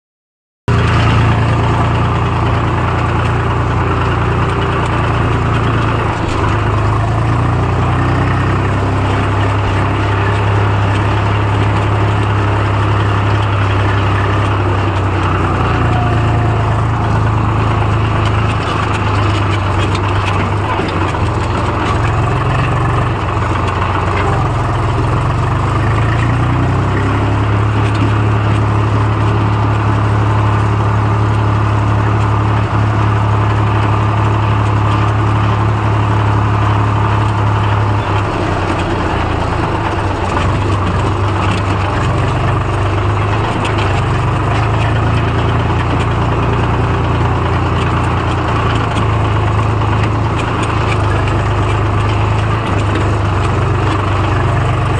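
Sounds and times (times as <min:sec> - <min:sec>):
tractor diesel engine humming: 0:00.7 - 0:54.9.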